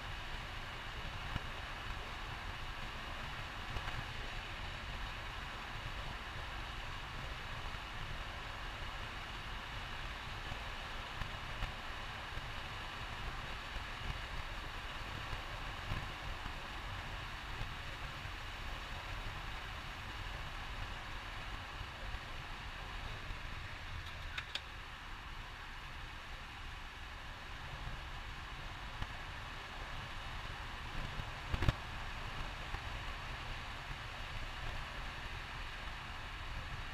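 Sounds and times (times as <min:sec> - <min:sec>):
road and wind noise: 0:00.0 - 0:36.9.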